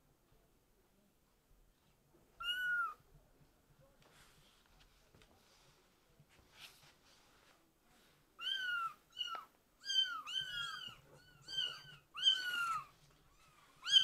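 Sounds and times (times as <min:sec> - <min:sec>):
kittens meowing: 0:02.4 - 0:03.0, 0:08.4 - 0:14.0.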